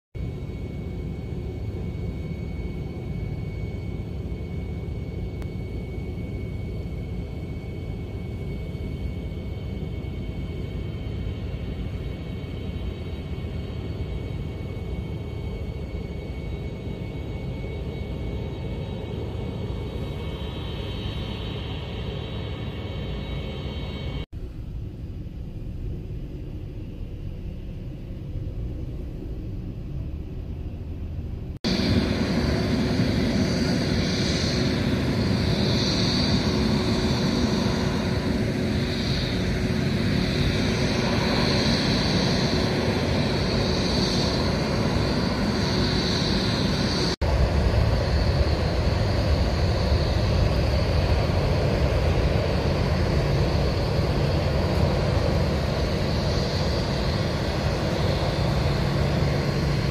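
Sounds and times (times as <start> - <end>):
airliner taxiing rumble: 0.2 - 59.9
jet engine high whine: 0.2 - 59.9
jet engine low rumble: 0.2 - 59.9.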